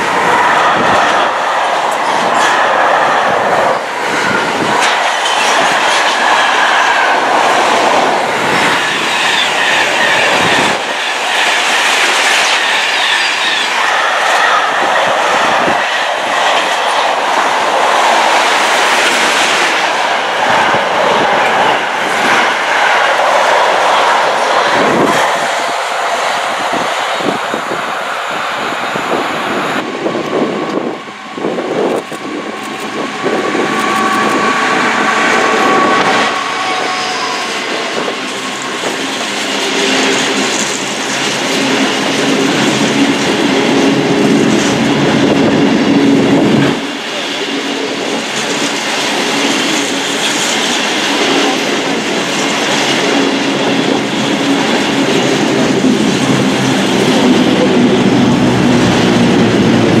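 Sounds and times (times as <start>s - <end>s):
diesel locomotive passing: 0.0s - 60.0s.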